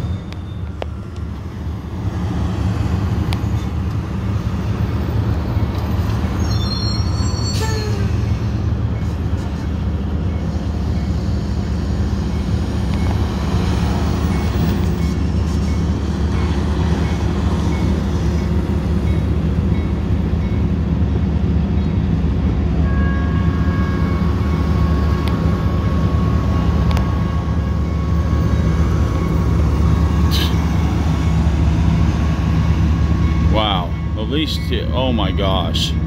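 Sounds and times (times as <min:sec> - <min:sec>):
approaching freight train: 0:00.0 - 0:36.0
heavy traffic diesel rumble: 0:00.0 - 0:36.0
crossing signal bell ringing: 0:06.0 - 0:09.1, 0:22.8 - 0:31.5, 0:33.2 - 0:36.0.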